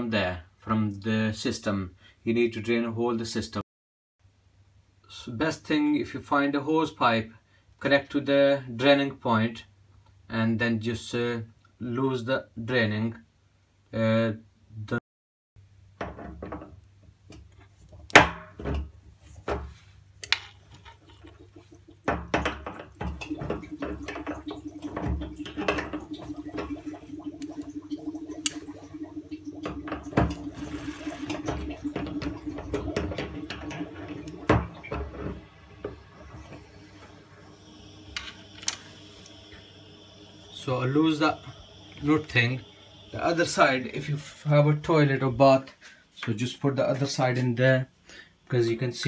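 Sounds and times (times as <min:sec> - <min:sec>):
water running into hose: 0:20.5 - 0:44.5.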